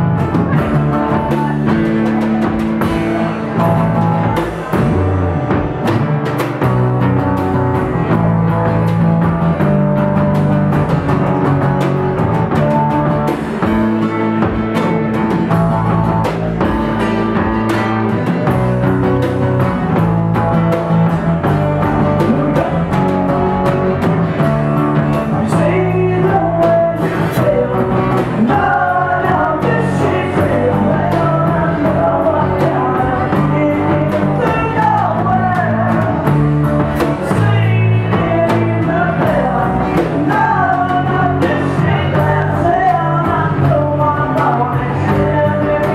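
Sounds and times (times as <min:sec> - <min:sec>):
person singing: 0:00.0 - 0:05.5, 0:21.4 - 0:45.9
acoustic guitar chords: 0:00.0 - 0:45.9
drum hits: 0:00.0 - 0:45.9.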